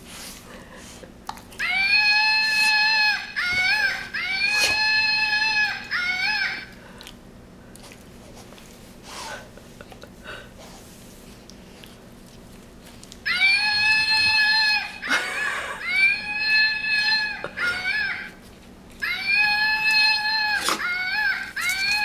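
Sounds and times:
toy monkey shrieks: 1.6 - 6.7
wavering cries: 1.6 - 6.8, 13.2 - 22.0.

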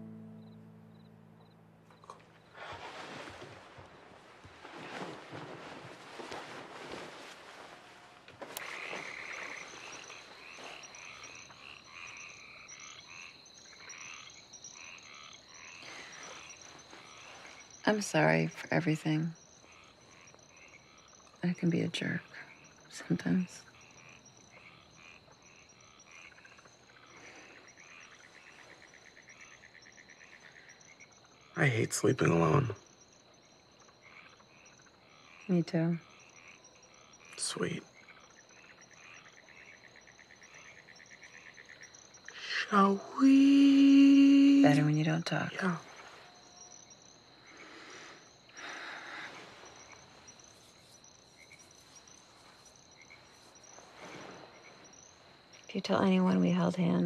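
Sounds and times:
frogs: 0.0 - 57.0
insects chirping: 0.0 - 57.0
bedsheets rustling: 2.4 - 11.3.

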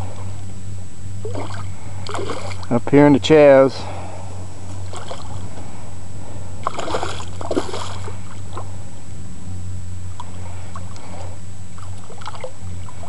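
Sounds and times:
steady low hum: 0.0 - 13.0
fish splashing in water: 1.2 - 2.7, 4.8 - 5.5, 6.6 - 8.7, 10.2 - 13.0.

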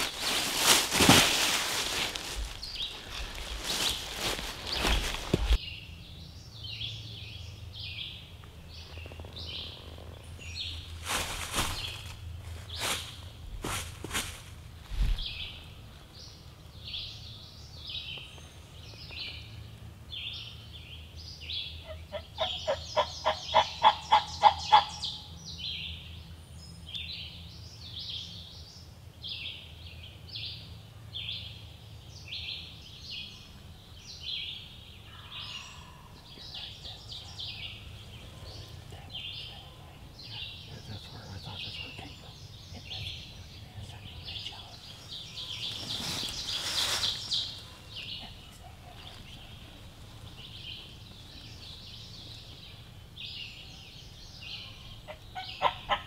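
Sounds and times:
songbirds chirping: 0.0 - 56.0
turkey yelping: 55.1 - 56.0.

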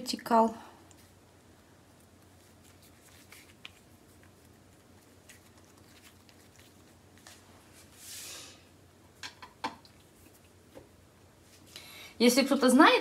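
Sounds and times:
soft dough handling: 0.7 - 9.2, 9.8 - 11.7.

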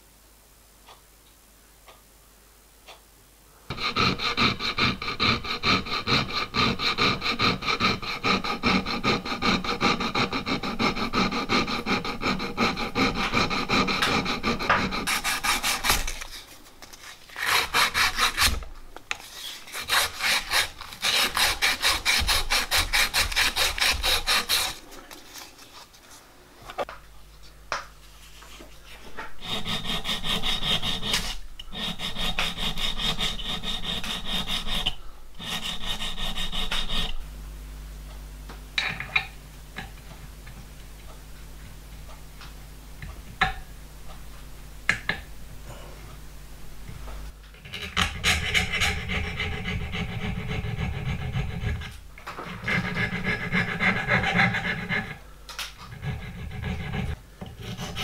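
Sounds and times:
metal file rasping: 3.7 - 16.4, 17.3 - 18.6, 19.3 - 24.8, 29.4 - 37.2, 47.6 - 55.2, 55.9 - 58.0.

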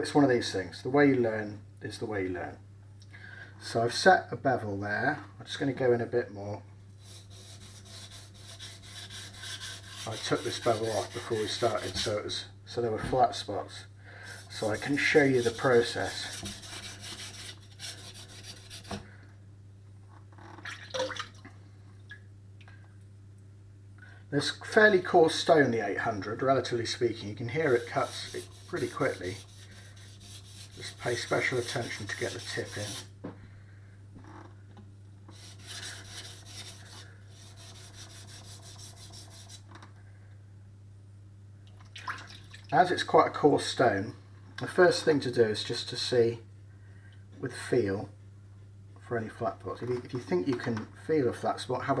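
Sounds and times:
knife rasping on water stone: 7.0 - 12.2, 14.3 - 19.0, 27.6 - 33.1, 35.3 - 39.7
faint drips and taps: 20.6 - 22.8, 41.6 - 42.7.

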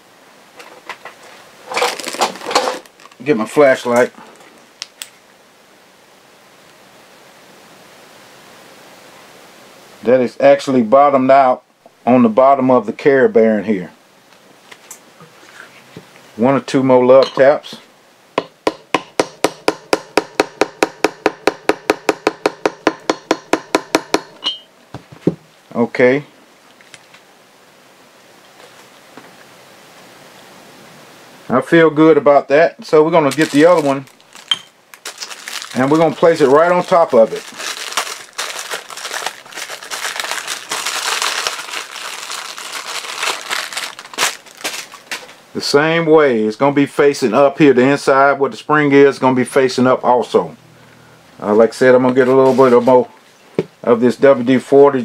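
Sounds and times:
plastic packaging crinkling: 1.1 - 5.2, 33.0 - 45.4
hammer tapping on metal: 18.4 - 24.6.

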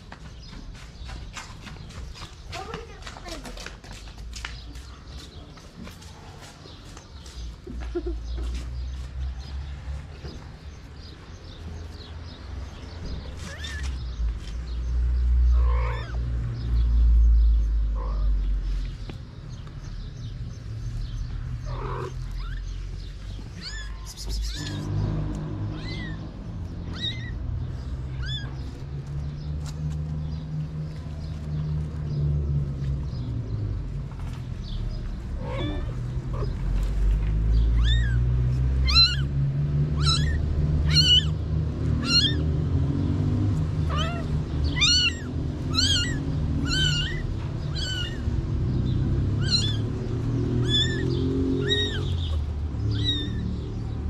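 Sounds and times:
kitten mewing: 23.5 - 24.9, 38.8 - 39.3, 40.0 - 41.4, 42.0 - 42.4, 43.9 - 48.3, 49.4 - 49.8, 50.6 - 53.4.

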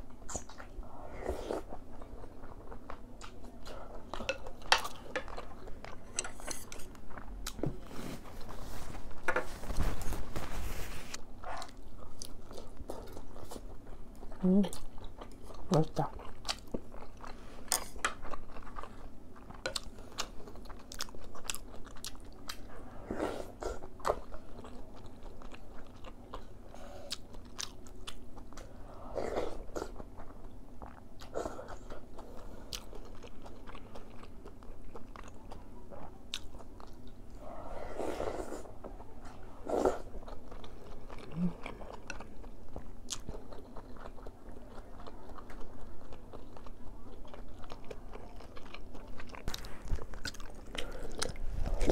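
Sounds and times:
person slurping soup: 37.4 - 38.7
wet chewing: 38.7 - 51.9.

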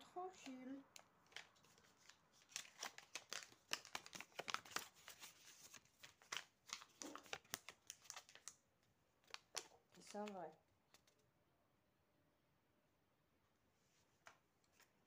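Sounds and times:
banknote crinkling: 0.4 - 11.3.

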